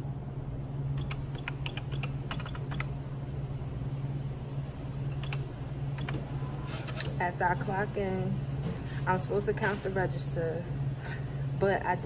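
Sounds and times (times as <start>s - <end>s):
steady low hum: 0.0s - 12.0s
keypad clicks: 1.0s - 2.9s, 5.1s - 5.4s.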